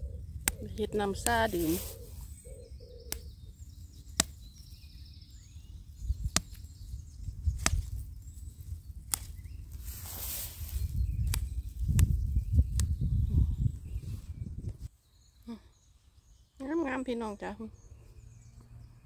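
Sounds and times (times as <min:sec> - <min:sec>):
low wind rumble: 0:00.0 - 0:14.9
plant stems snapping: 0:00.4 - 0:01.9, 0:03.1 - 0:03.3, 0:04.1 - 0:04.4, 0:06.2 - 0:06.7, 0:07.5 - 0:13.0
grass rustling: 0:00.4 - 0:04.6, 0:05.9 - 0:13.4.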